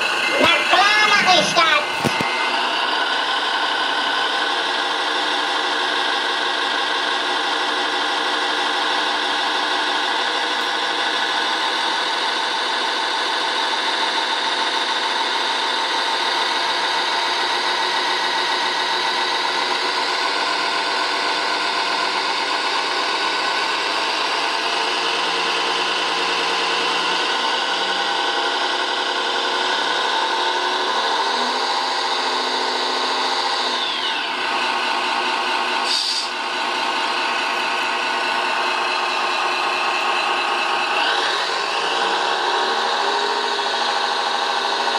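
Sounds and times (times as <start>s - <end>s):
small electric motors whirring: 29.8s - 36.4s.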